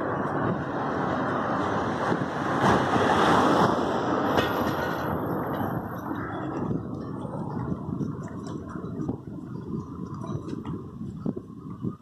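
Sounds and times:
car passing by: 0.0 - 7.7.

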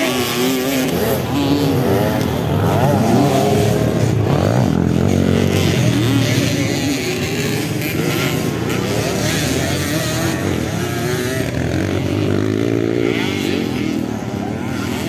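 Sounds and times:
dirt bike engines revving: 0.0 - 15.0.

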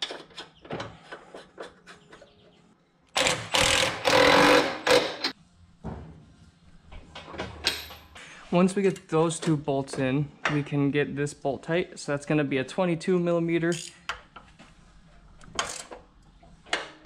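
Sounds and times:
impact wrench bursts: 3.2 - 5.3.

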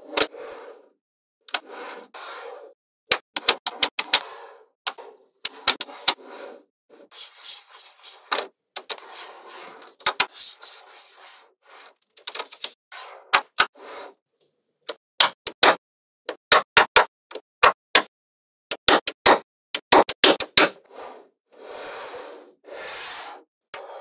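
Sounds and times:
balls rattling and scraping: 1.5 - 14.2.

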